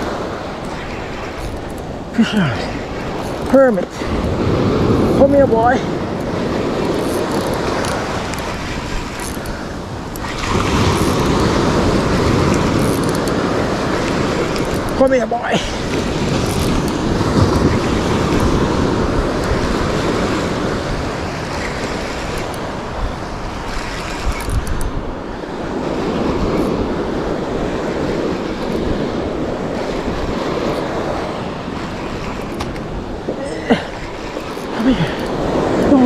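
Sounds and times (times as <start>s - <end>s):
surf breaking on beach: 0.0s - 24.3s
wind on microphone: 0.0s - 36.0s.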